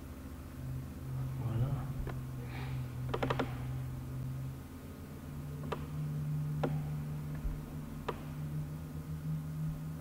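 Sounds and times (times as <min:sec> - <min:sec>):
low electrical hum: 0:00.0 - 0:10.0
computer mouse clicks: 0:03.1 - 0:03.6.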